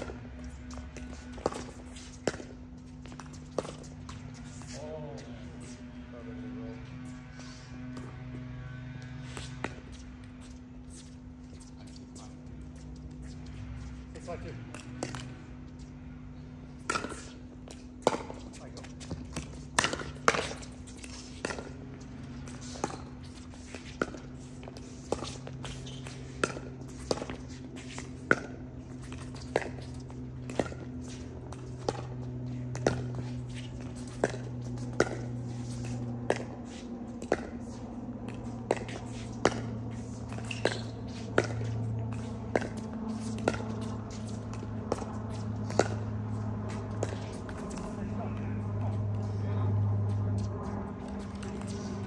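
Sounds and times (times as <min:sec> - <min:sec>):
steady low hum: 0:00.0 - 0:52.0
paddles hitting ball clicks: 0:22.4 - 0:49.3.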